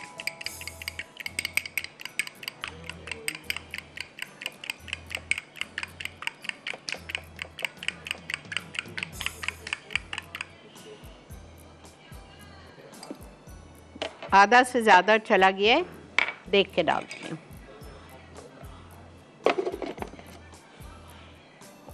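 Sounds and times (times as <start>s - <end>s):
fork clinking on glass bowl: 0.0s - 10.5s.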